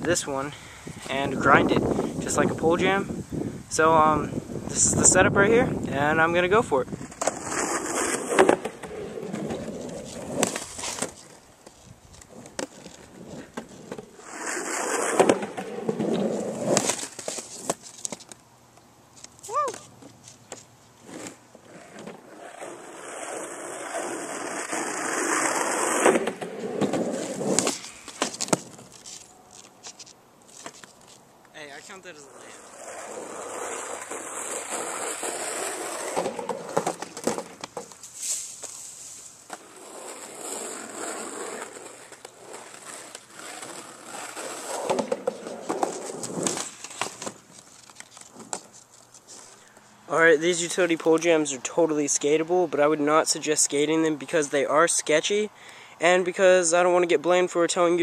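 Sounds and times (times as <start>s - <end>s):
skateboard wheels rolling: 4.5s - 31.2s, 32.1s - 55.2s
skateboard clacks and knocks: 35.9s - 38.0s, 44.7s - 47.4s.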